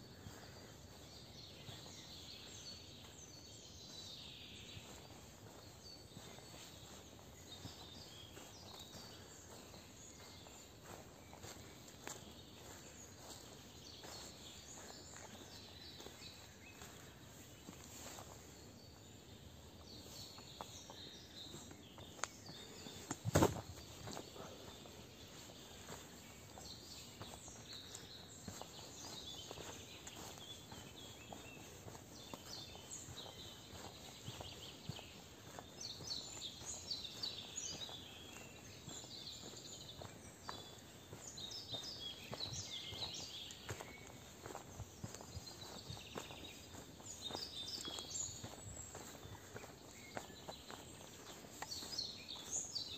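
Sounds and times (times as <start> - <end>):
soft footsteps on a path: 0.0 - 52.9
songbirds singing and chirping: 0.0 - 52.9.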